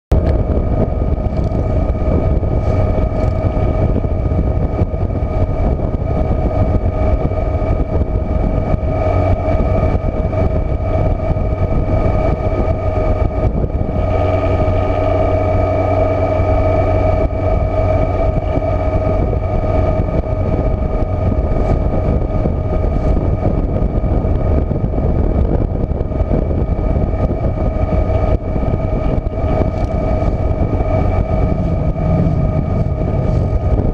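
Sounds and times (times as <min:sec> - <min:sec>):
motorcycle engine cruising: 0:00.1 - 0:05.7, 0:27.6 - 0:33.9
steady whine: 0:00.1 - 0:33.9
wind and road noise: 0:00.1 - 0:33.9.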